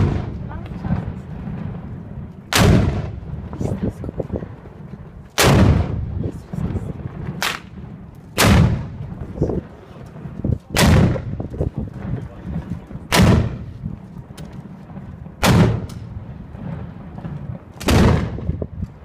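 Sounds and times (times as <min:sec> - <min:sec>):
gunshots echoing: 0:00.0 - 0:01.8, 0:02.5 - 0:03.4, 0:05.4 - 0:06.1, 0:07.0 - 0:09.1, 0:10.7 - 0:11.4, 0:13.1 - 0:13.7, 0:15.4 - 0:16.1, 0:17.8 - 0:18.6.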